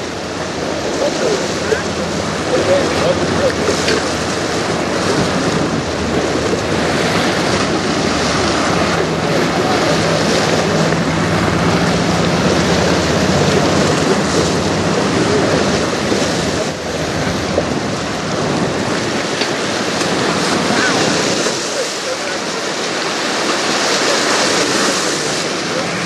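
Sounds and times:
low ship hum: 0.0 - 26.0
water lapping against rocks: 0.0 - 26.0
wind on microphone: 0.0 - 26.0.

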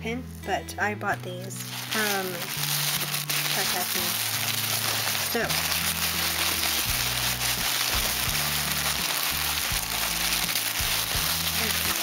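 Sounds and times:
music with low sustained notes: 0.0 - 12.0
tissue paper rustling: 1.2 - 12.0.

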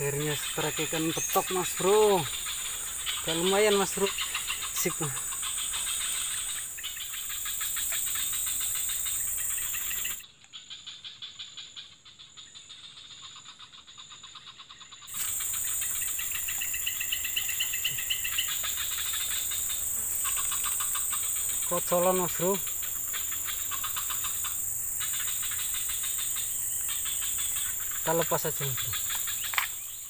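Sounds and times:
insects chirring: 0.0 - 30.0.

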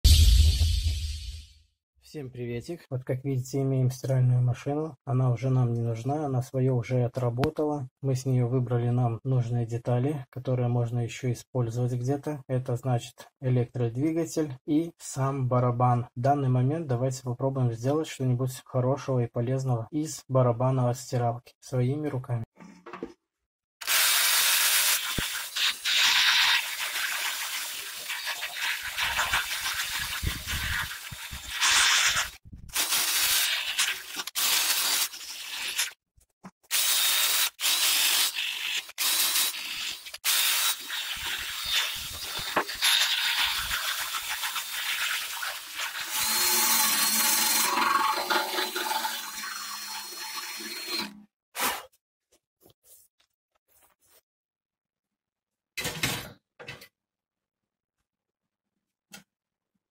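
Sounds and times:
power drill motor whine: 46.2 - 47.8.

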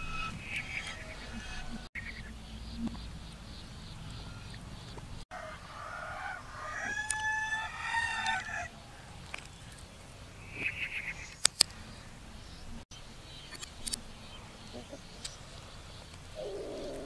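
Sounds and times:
rooster crowing: 0.0 - 1.9, 5.3 - 9.2.

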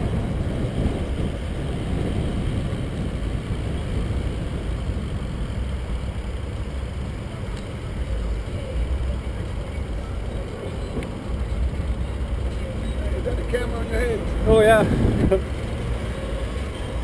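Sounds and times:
wind buffeting microphone: 0.0 - 9.1, 14.2 - 16.0
road traffic noise: 0.0 - 17.0.

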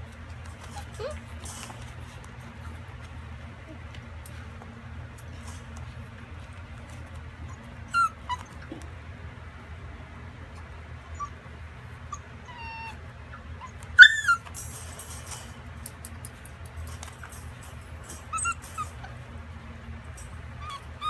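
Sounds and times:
steady low hum: 0.0 - 21.0
puppies whimpering and yipping: 0.5 - 1.8, 7.4 - 8.9, 11.0 - 14.7, 17.0 - 19.3, 20.5 - 21.0.

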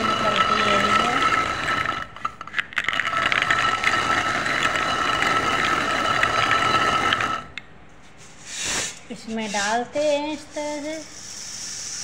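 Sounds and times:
stone-on-stone grinding with whine: 0.0 - 7.6.

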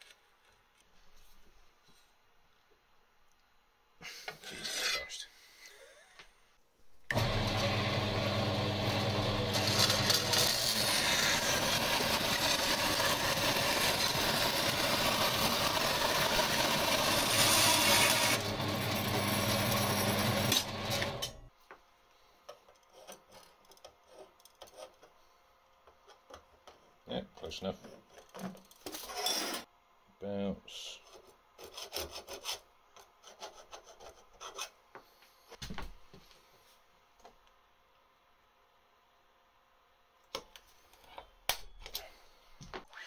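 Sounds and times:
bandsaw running hum: 7.1 - 21.4
saw blade cutting steel: 9.5 - 21.3.

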